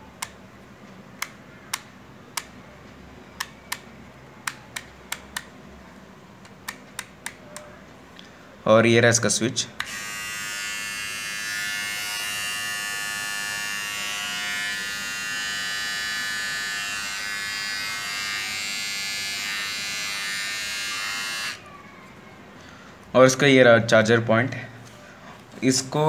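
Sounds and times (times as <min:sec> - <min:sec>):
beard trimmer buzzing: 0:09.8 - 0:21.6.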